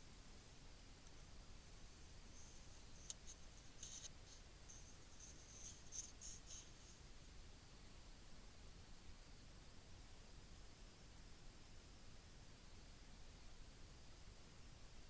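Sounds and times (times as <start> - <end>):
faint steady hiss: 0.0 - 15.0
faint high-pitched ticks: 1.0 - 7.1.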